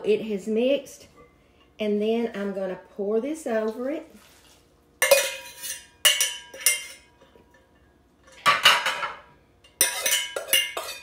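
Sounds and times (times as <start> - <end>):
metal spoon scraping saucepan: 4.4 - 7.1, 9.8 - 11.0.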